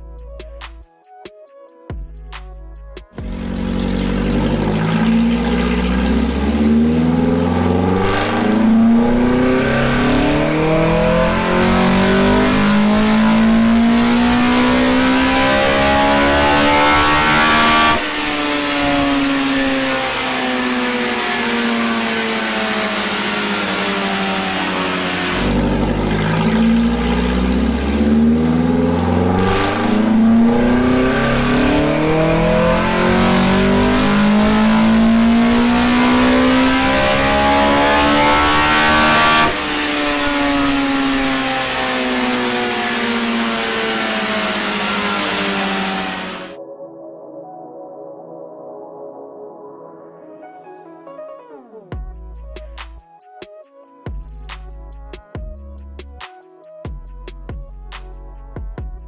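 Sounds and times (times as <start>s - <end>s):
four-cylinder engine revving at full throttle: 3.2s - 46.6s.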